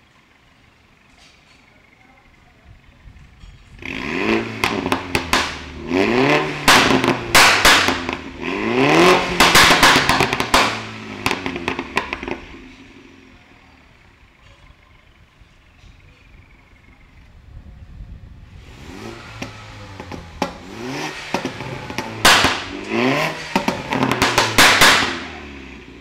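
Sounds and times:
exhaust pops and crackles: 3.2s - 13.0s, 18.9s - 26.0s
car engine revving: 3.7s - 13.4s, 18.4s - 26.0s.

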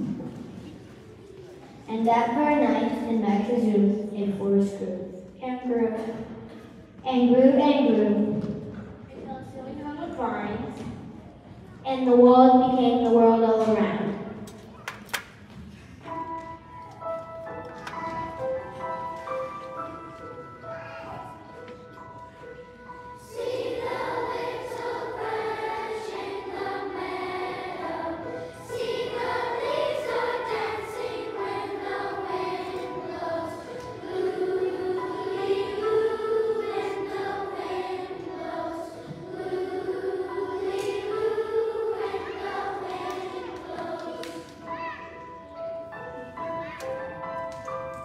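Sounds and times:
children's choir singing: 15.9s - 47.9s.

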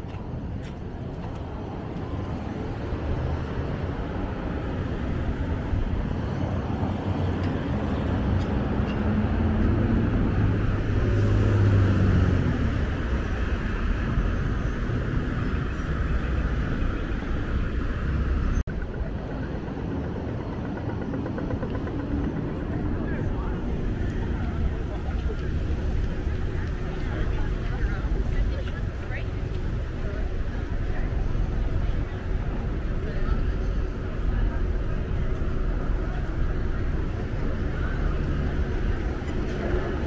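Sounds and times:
cars driving past: 1.6s - 18.6s
vehicle engine rumble passing close: 1.6s - 40.0s.

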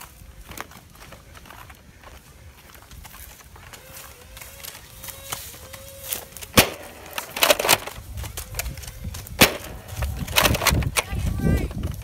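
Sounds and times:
toy blaster clicking and rattling: 4.4s - 11.2s
toy blaster firing clacks: 5.1s - 8.8s.

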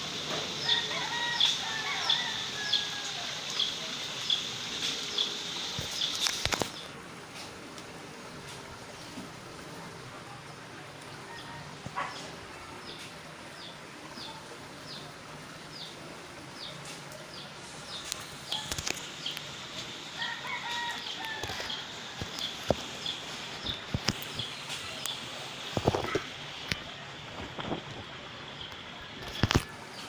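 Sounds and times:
rooster crowing: 0.6s - 3.4s, 20.1s - 21.9s.

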